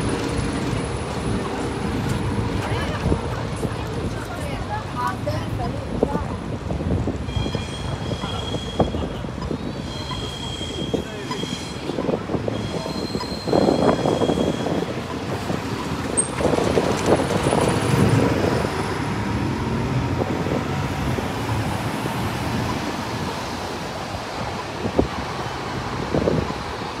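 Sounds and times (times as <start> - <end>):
bus engine running: 0.0 - 7.2
street traffic: 0.0 - 27.0.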